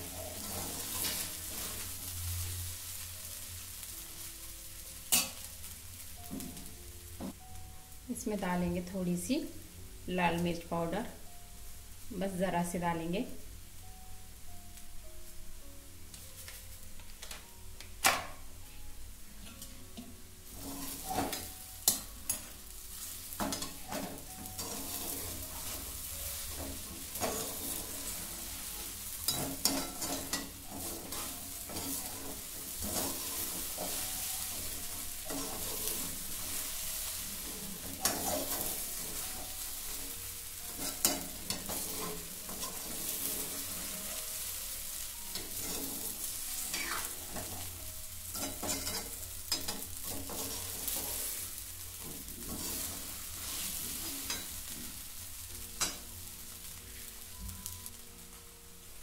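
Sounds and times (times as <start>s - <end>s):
metal spatula scraping pan: 0.0s - 1.9s, 23.4s - 40.0s, 40.7s - 44.2s, 45.3s - 47.7s, 48.3s - 51.4s, 52.0s - 54.8s
light frying sizzle: 0.0s - 59.0s.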